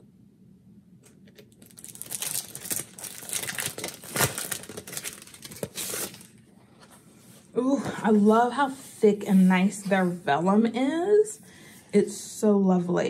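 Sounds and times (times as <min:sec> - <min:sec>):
packaging crinkling and tearing: 0:01.0 - 0:06.4.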